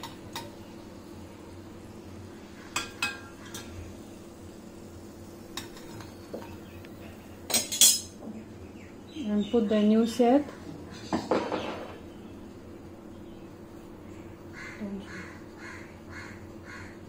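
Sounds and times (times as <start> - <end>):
metal spoon clinking on plate: 7.5 - 8.2.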